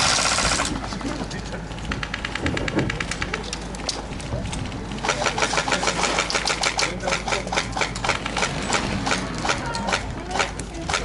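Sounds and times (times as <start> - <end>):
toy guns firing rapid bursts: 0.0 - 0.7, 5.0 - 11.0.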